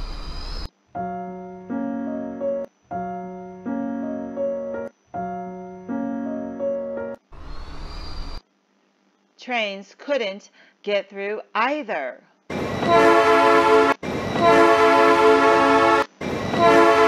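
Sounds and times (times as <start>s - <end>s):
keyboard chords: 1.0s - 7.2s.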